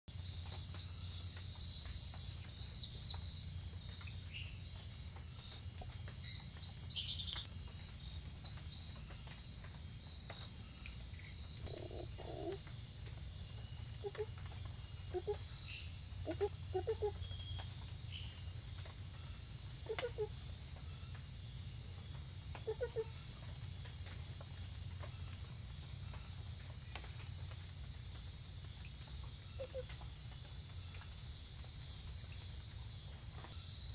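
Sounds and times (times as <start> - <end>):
high pulsing insect chorus: 0.1 - 33.9
frog giving short low calls: 11.6 - 12.7.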